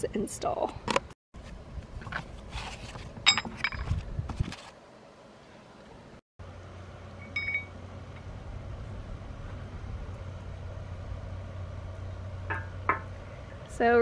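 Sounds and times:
steady low hum: 1.4s - 14.0s
metallic ring: 7.2s - 7.8s.

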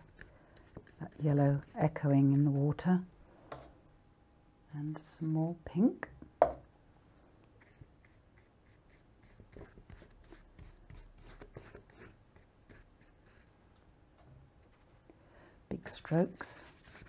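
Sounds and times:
paintbrush strokes on paper: 0.0s - 2.8s, 7.6s - 13.5s, 15.9s - 17.0s.

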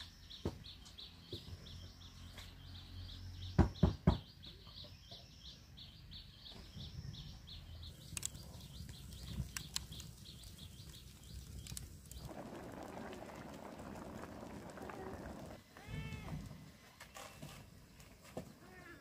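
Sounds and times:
sharp clicks: 8.0s - 10.4s.

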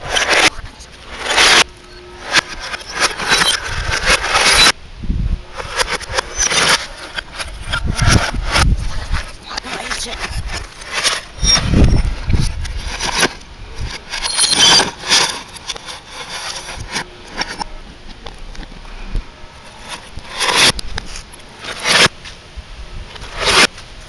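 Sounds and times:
glass shards rattling: 1.1s - 4.7s, 14.1s - 16.7s.

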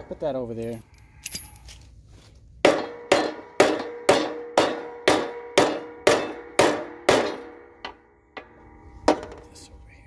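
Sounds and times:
hammer striking steel ringing: 2.6s - 9.3s.

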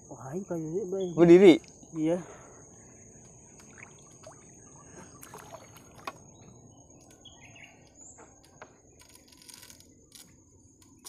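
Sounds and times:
high insect drone: 0.0s - 11.0s
water sloshing around boat: 1.5s - 9.0s.

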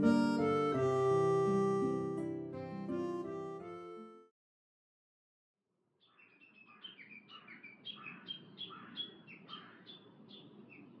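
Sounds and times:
birds chirping: 6.0s - 11.0s.

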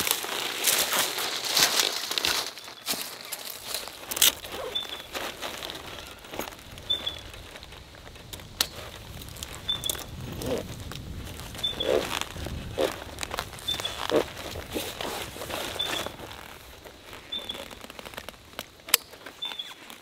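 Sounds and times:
plastic bag crinkling: 0.0s - 20.0s
bird high call: 4.5s - 5.2s, 5.9s - 7.4s, 9.6s - 10.6s, 11.6s - 12.2s, 13.6s - 14.2s, 15.7s - 16.2s, 17.3s - 17.7s, 19.0s - 19.8s.

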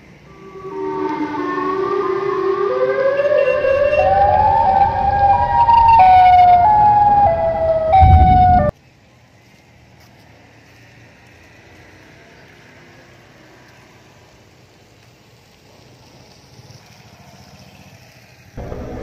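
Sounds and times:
distorted siren-like wail: 0.3s - 8.7s, 18.6s - 19.0s
low rumble: 0.3s - 8.7s, 18.6s - 19.0s.

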